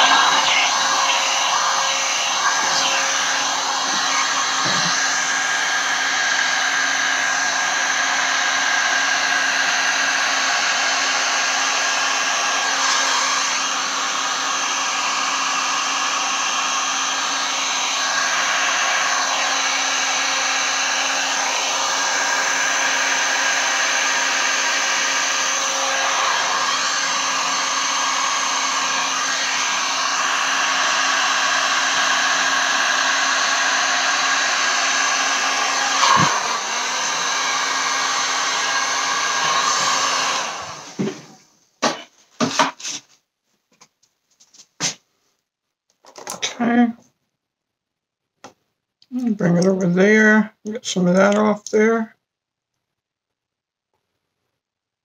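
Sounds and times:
heat gun blowing air: 0.0 - 43.0.

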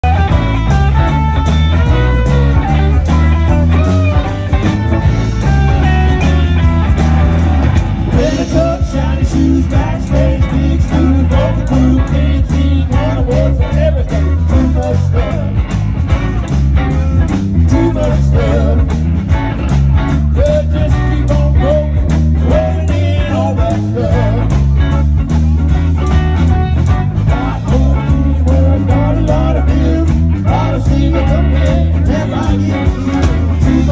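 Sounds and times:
bass guitar: 0.0 - 33.9
drumbeat: 0.0 - 33.9
electric guitars: 0.0 - 33.9
person singing: 8.1 - 15.6, 17.6 - 19.0, 20.3 - 24.7, 27.3 - 33.9.

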